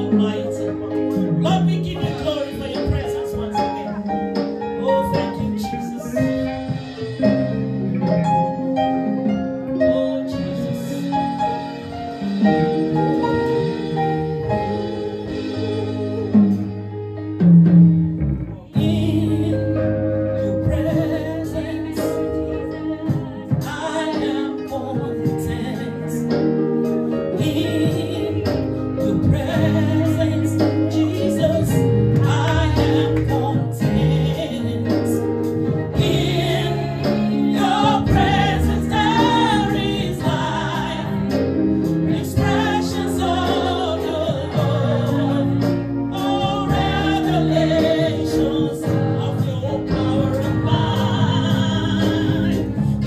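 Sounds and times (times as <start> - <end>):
woman singing lead: 0.0 - 16.9, 18.5 - 53.0
choir singing: 35.9 - 53.0.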